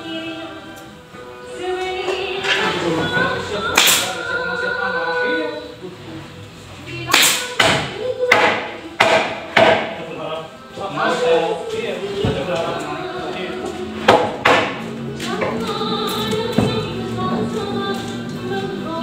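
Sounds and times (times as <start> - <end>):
background music with singing: 0.0 - 19.0
staple gun firing: 3.8 - 4.1.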